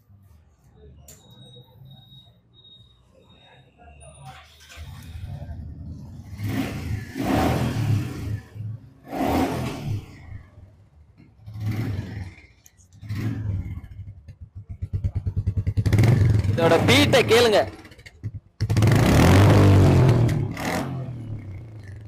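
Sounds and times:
motorcycle engine revving: 4.6s - 10.7s, 11.4s - 22.0s.

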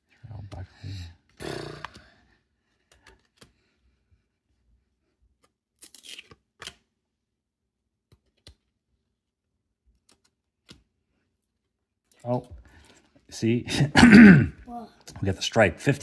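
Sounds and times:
trading cards flicking and sliding: 2.7s - 3.7s, 5.3s - 6.9s, 8.0s - 8.8s, 9.9s - 11.0s.

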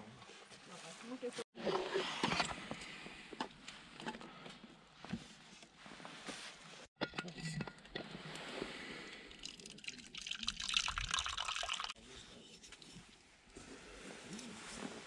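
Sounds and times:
drink pouring into plastic cup: 9.3s - 12.0s.

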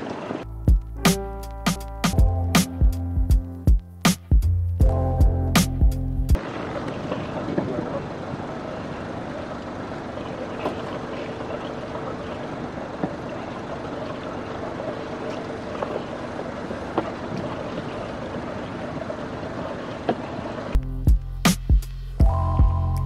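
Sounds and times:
rushing water noise: 6.4s - 20.8s.

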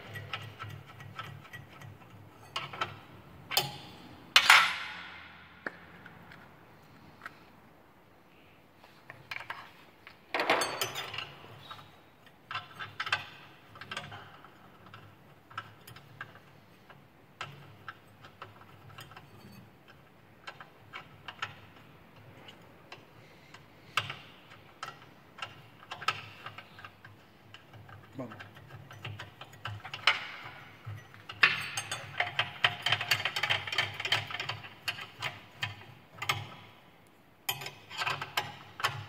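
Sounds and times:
metal clattering scrape: 18.6s - 20.0s
small metal clicks and clinks: 23.9s - 36.6s.

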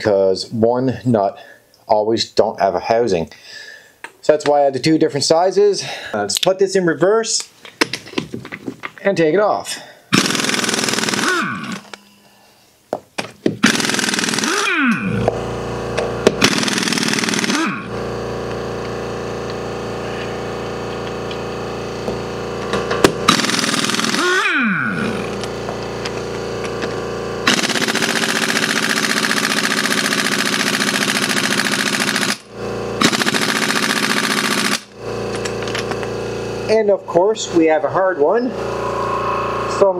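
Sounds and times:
air motor whine: 10.1s - 12.6s, 13.2s - 39.9s
impact wrench hammering: 10.2s - 12.1s, 12.9s - 17.9s, 22.0s - 36.1s.

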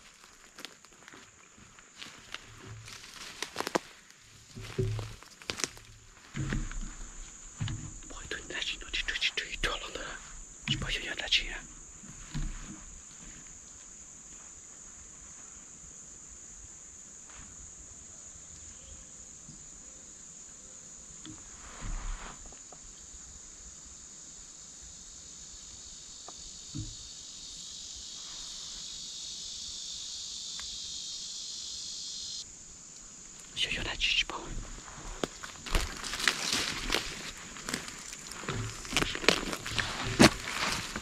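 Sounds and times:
insects buzzing high: 0.0s - 41.0s
lower insect buzz: 0.0s - 41.0s
rustle: 0.0s - 41.0s.

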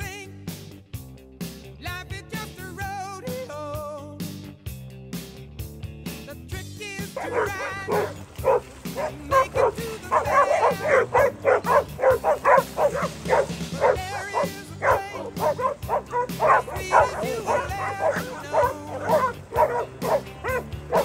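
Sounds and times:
background music: 0.0s - 21.0s
dogs barking excitedly: 7.0s - 21.0s.

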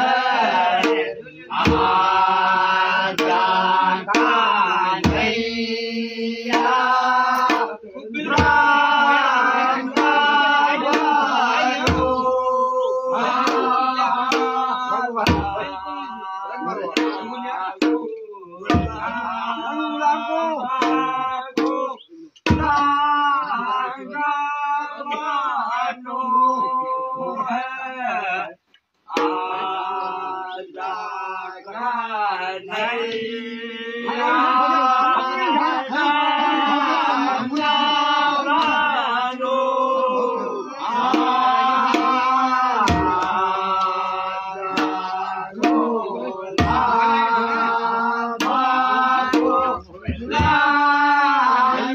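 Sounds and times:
men singing together: 0.0s - 51.9s
barrel drum beating: 1.6s - 2.1s, 3.1s - 3.5s, 4.1s - 5.5s, 15.2s - 15.8s, 17.0s - 19.2s, 22.5s - 23.0s, 41.0s - 43.6s, 44.7s - 45.9s, 46.6s - 47.1s, 49.2s - 50.7s.

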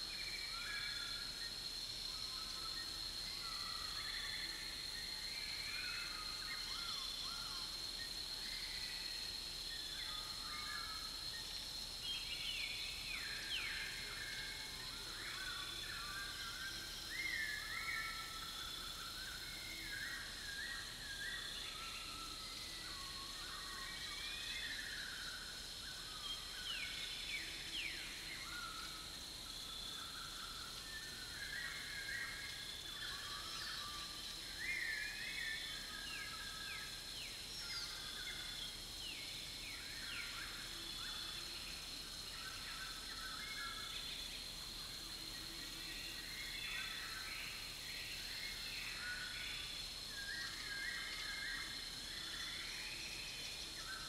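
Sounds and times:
high-pitched insect drone: 0.0s - 54.0s.

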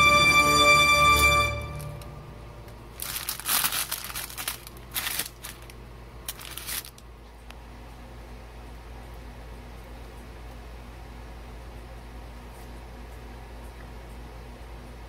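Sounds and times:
parchment paper crinkling: 2.9s - 7.4s.

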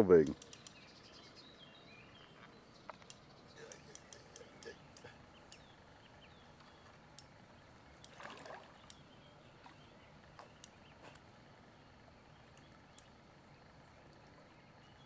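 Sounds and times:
light ticks: 0.1s - 0.9s, 2.4s - 5.7s, 6.6s - 7.3s, 8.8s - 9.0s, 10.3s - 11.3s, 12.5s - 13.2s
water splashing: 7.9s - 11.0s.

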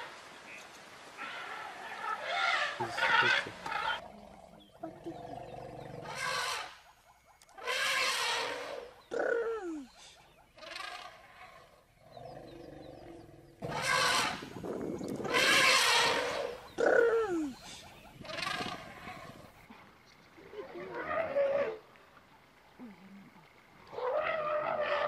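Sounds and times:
elephant trumpeting: 1.2s - 4.0s, 6.0s - 6.7s, 7.6s - 9.4s, 13.6s - 14.5s, 15.2s - 17.2s.

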